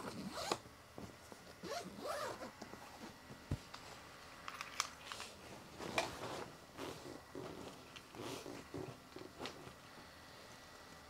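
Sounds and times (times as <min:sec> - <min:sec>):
zipper rasps: 0:00.0 - 0:00.6, 0:01.6 - 0:02.5, 0:06.8 - 0:08.9
items rustling and scraping: 0:00.0 - 0:09.8.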